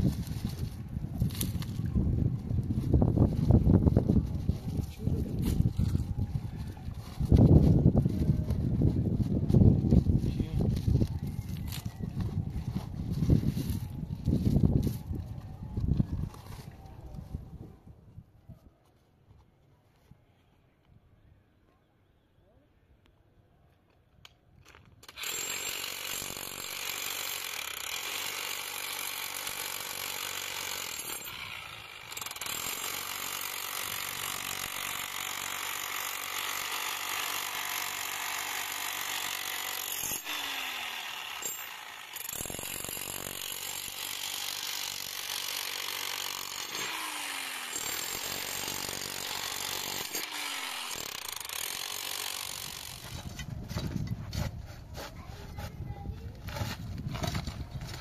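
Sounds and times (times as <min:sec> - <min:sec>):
chipping hammer on concrete: 0:25.1 - 0:53.4.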